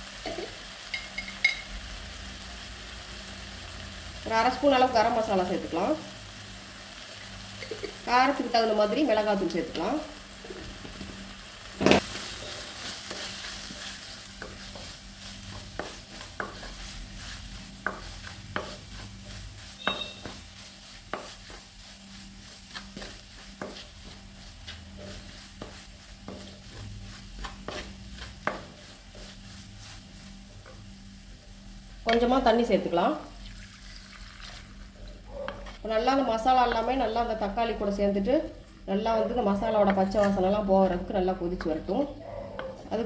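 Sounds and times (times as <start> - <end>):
faint sizzle of frying: 0.0 - 43.0
wooden spatula scraping a pot: 11.8 - 30.8.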